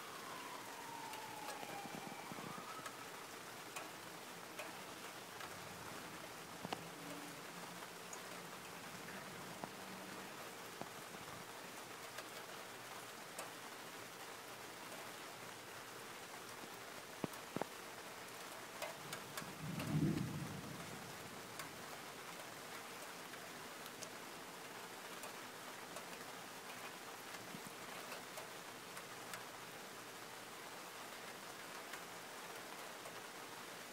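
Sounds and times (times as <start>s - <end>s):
steady rain falling: 0.0s - 33.9s
low thunder rumble: 19.4s - 21.3s.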